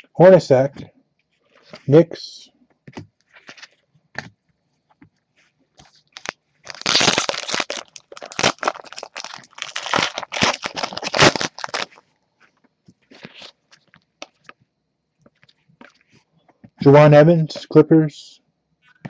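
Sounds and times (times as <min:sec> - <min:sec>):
foil wrapper tearing and crinkling: 0:05.9 - 0:12.0.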